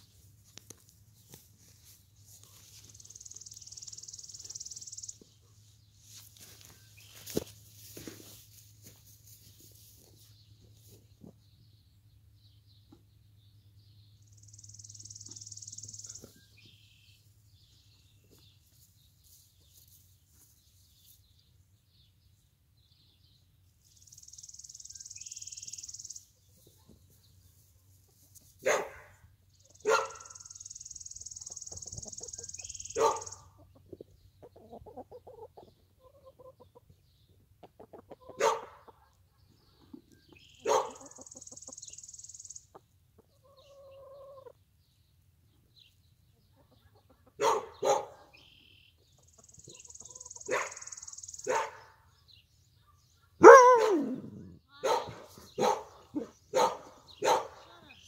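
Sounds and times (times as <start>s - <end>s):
hen clucking: 31.4s - 42.0s, 42.6s - 44.7s, 46.4s - 48.0s, 49.0s - 50.6s.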